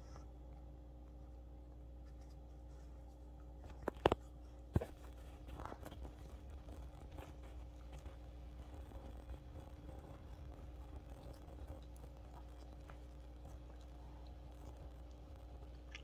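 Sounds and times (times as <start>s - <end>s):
dog chewing and gnawing: 3.7s - 16.0s
scratchy crackling: 3.7s - 16.0s.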